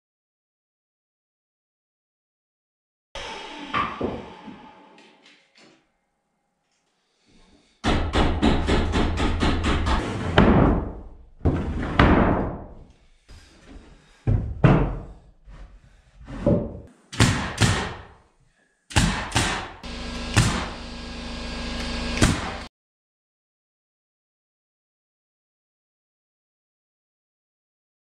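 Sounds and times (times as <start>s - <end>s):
wooden thuds and knocks: 7.8s - 12.9s, 14.3s - 15.2s
nail gun shots: 17.2s - 18.1s, 18.9s - 20.8s, 21.8s - 22.7s
steady hum: 19.8s - 22.7s.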